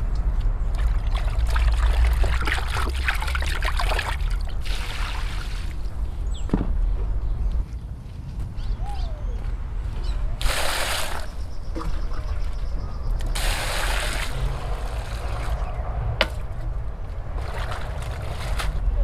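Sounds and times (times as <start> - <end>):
water pouring onto vegetables: 13.4 - 15.6.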